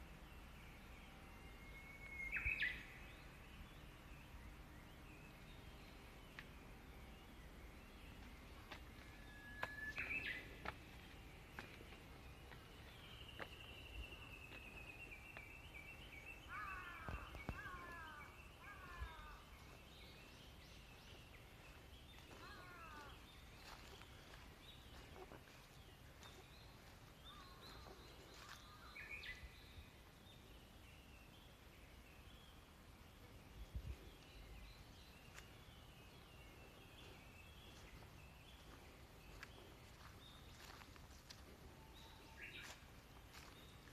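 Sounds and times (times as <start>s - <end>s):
birds calling: 7.3s - 29.7s.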